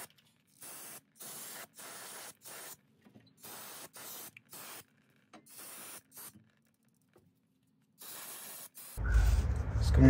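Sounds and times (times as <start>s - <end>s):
aerosol spray hissing: 0.6s - 2.8s, 3.4s - 4.8s, 8.0s - 9.0s.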